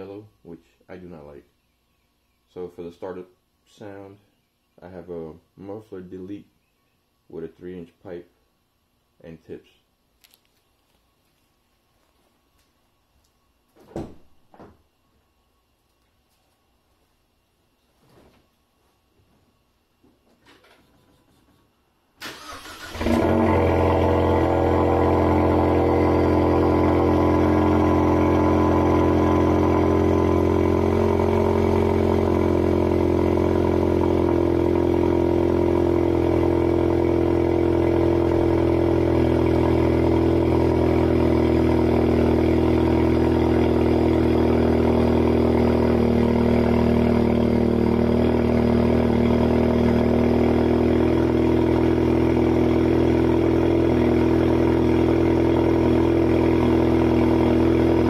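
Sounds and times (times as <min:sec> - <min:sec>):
car engine idling: 0:22.2 - 0:58.0.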